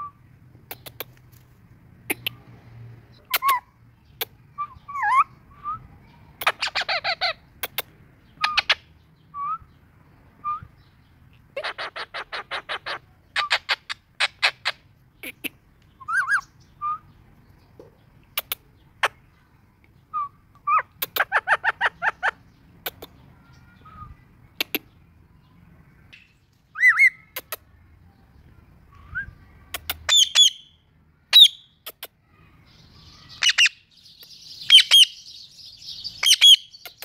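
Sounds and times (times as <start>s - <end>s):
parakeet chirps and harsh calls: 3.1s - 9.7s, 10.8s - 17.2s, 20.2s - 25.1s, 26.0s - 27.8s, 29.0s - 37.0s.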